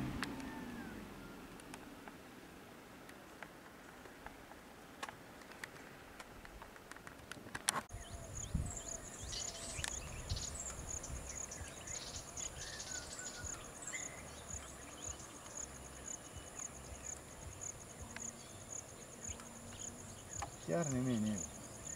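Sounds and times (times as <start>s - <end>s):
birds chirping: 7.9s - 21.9s
insects buzzing: 7.9s - 21.9s.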